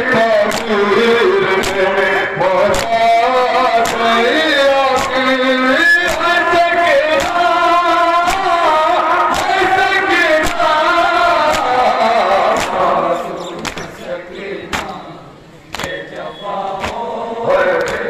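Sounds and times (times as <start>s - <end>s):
men chanting a lament into a microphone: 0.0s - 18.0s
slaps of chest beating: 0.5s - 0.7s, 2.7s - 3.0s, 4.9s - 5.2s, 7.2s - 7.4s, 8.2s - 8.5s, 9.3s - 9.6s, 10.4s - 10.7s, 11.5s - 11.8s, 12.6s - 12.8s, 13.6s - 13.9s, 15.7s - 16.0s, 16.8s - 17.0s.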